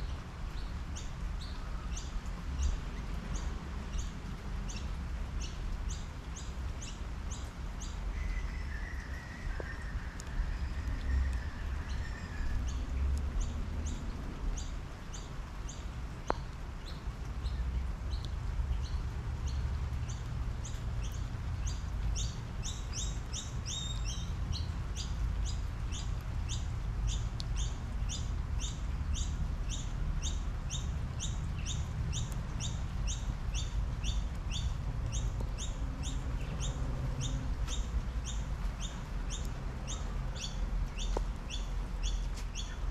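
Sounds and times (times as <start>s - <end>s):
steady rain falling: 0.0s - 42.9s
bird chirping: 16.8s - 42.9s.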